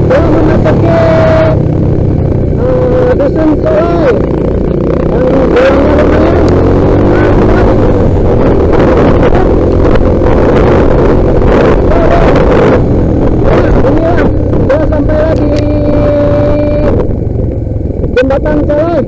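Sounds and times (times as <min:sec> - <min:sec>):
motorcycle engine revving: 0:00.0 - 0:19.0
wind on microphone: 0:04.0 - 0:18.4.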